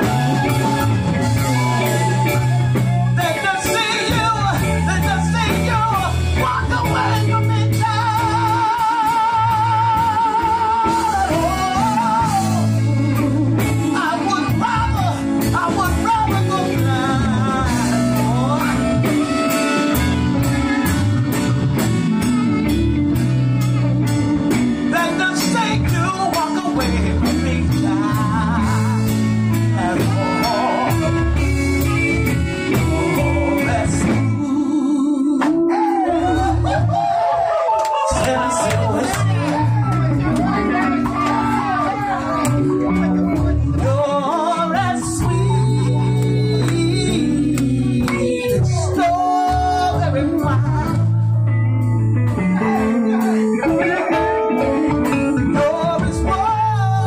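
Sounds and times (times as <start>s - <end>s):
steady drum beat: 0.0s - 34.6s
electric bass: 0.0s - 57.0s
electric guitar: 0.0s - 57.0s
lead singer singing: 0.0s - 57.0s.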